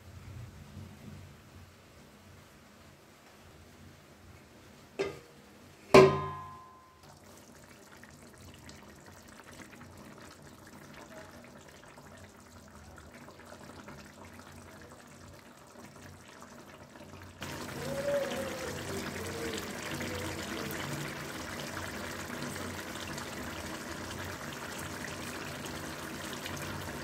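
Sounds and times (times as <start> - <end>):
steel lid clanging on pot: 5.0 - 5.3, 6.0 - 6.9
curry simmering bubbling: 7.0 - 27.0.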